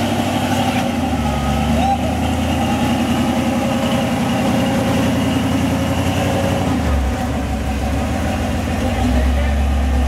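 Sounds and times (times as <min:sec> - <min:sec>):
truck engine under load: 0:00.0 - 0:10.0.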